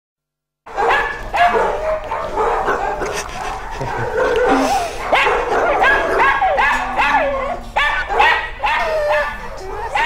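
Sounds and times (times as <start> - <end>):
dogs barking and yipping: 0.7 - 10.0.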